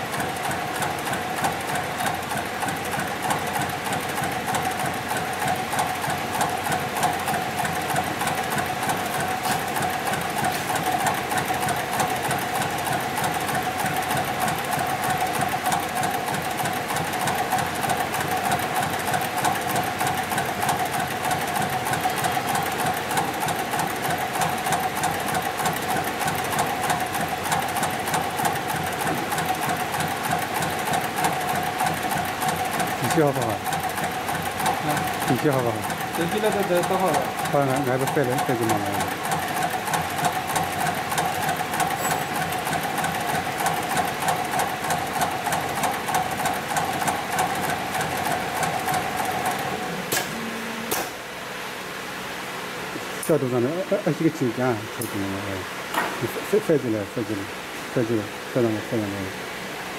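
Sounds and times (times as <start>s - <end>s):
sewing machine stitching: 0.1s - 51.2s.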